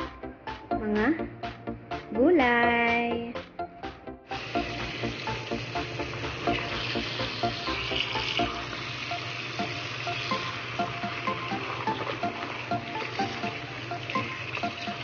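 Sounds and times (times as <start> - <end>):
tap water running into basin: 4.3 - 15.0.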